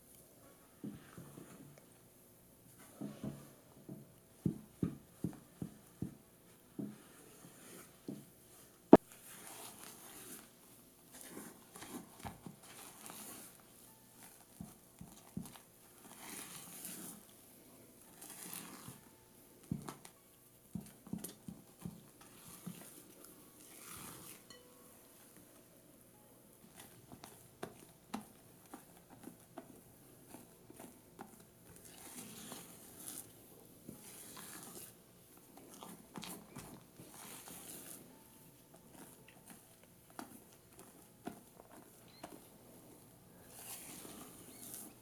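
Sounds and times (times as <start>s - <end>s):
spatula scraping glass bowl: 23.6s - 24.7s.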